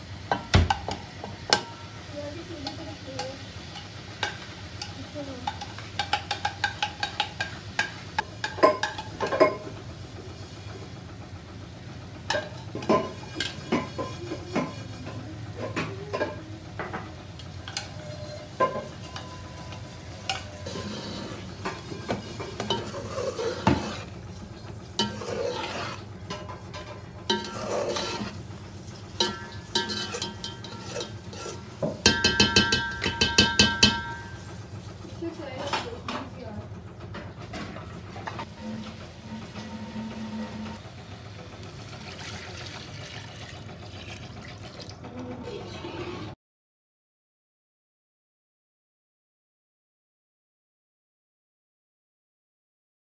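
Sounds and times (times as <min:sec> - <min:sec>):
curry sizzling in a pot: 0:00.0 - 0:11.4, 0:12.2 - 0:16.4, 0:17.2 - 0:36.0
metal spoon scraping a pot: 0:12.3 - 0:15.8, 0:17.6 - 0:24.1, 0:25.0 - 0:28.5, 0:29.2 - 0:34.4, 0:38.4 - 0:40.8, 0:45.5 - 0:46.4.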